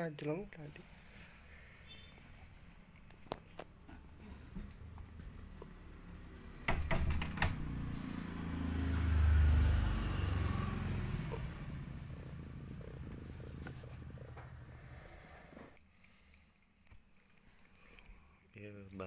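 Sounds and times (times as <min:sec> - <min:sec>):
cat purring: 0:07.6 - 0:15.8.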